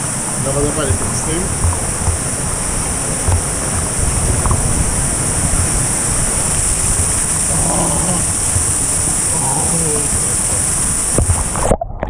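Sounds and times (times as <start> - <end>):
waterfall pouring into pool: 0.0 - 12.0
water knocking against camera: 0.9 - 7.3, 8.2 - 9.2, 11.1 - 12.0.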